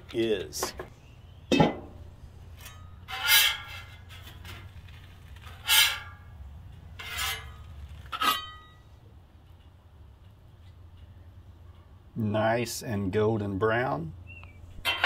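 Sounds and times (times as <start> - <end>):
metallic ring: 2.6 - 4.1, 7.0 - 9.0
metal spatula scraping griddle: 2.6 - 4.7, 5.4 - 6.3, 7.0 - 8.7.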